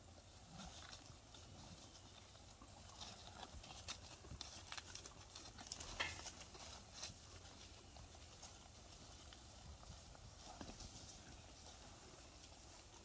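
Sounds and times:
cattle chewing hay: 0:00.0 - 0:13.0
hoof steps on dry ground: 0:00.0 - 0:13.0.

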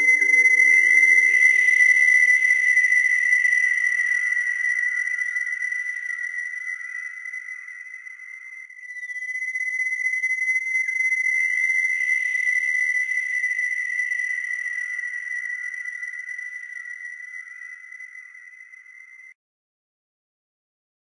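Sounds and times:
held high synthesizer tone: 0:00.0 - 0:02.6.

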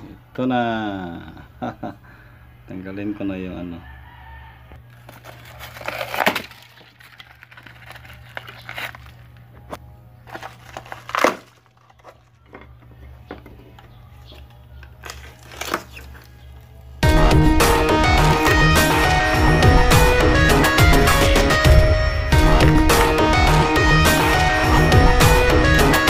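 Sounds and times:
filler cracking and crumbling: 0:04.8 - 0:17.0
loud music: 0:17.0 - 0:26.0.

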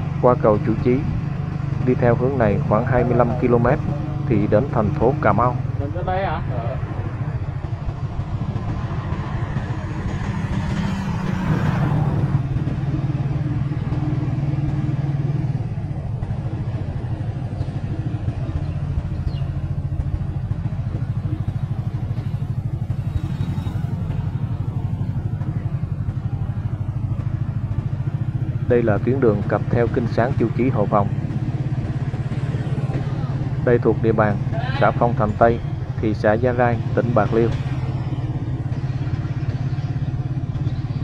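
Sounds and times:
motorcycle engine running: 0:00.0 - 0:41.0.

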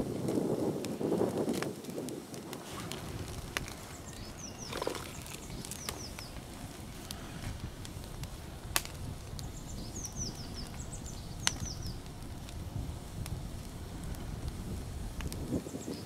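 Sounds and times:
campfire crackling and popping: 0:00.0 - 0:16.0
low wind rumble: 0:00.0 - 0:16.0
small bird chirping: 0:03.7 - 0:06.5, 0:09.4 - 0:12.0.

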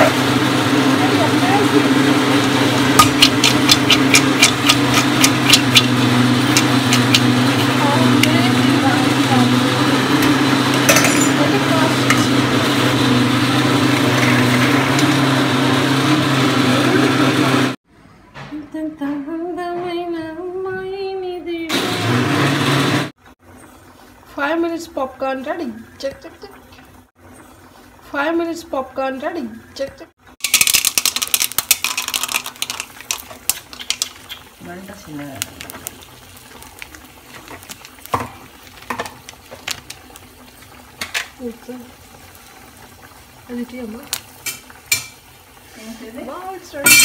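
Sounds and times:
popcorn popping in a pan: 0:02.8 - 0:12.3, 0:30.4 - 0:45.5, 0:46.4 - 0:47.0.

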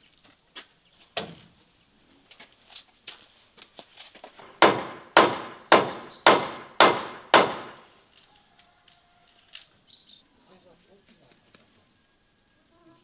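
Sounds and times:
hammer blows on wood: 0:04.4 - 0:07.8.

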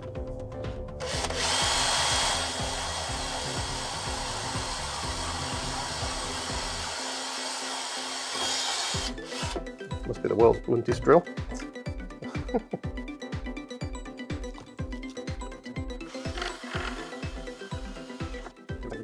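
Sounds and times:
background music: 0:00.0 - 0:19.0
cordless drill boring into plastic: 0:01.0 - 0:09.6, 0:16.0 - 0:18.6.

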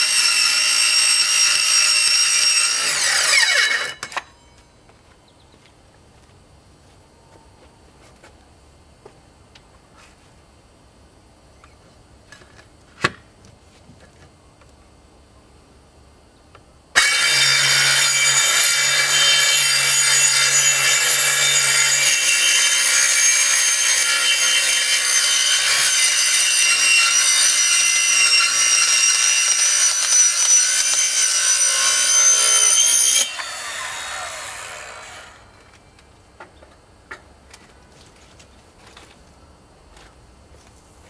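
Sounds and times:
circular saw cutting plastic panel: 0:17.0 - 0:35.5.

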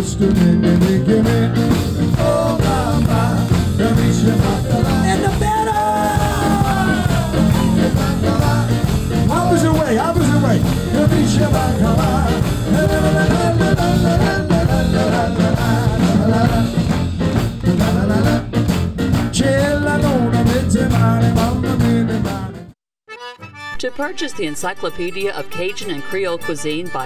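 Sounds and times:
person singing: 0:00.0 - 0:16.9, 0:19.3 - 0:22.7
steady bass beat: 0:00.0 - 0:22.5
live band playing: 0:00.0 - 0:22.7, 0:23.3 - 0:27.0.

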